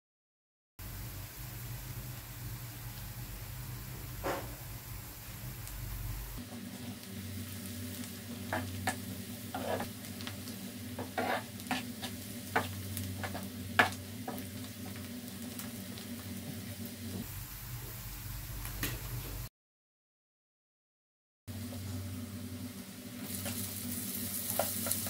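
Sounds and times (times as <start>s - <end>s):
onions sizzling in oil: 0.8s - 19.5s, 21.5s - 25.0s
metal spoon scraping a pan: 8.5s - 9.9s, 11.0s - 14.0s.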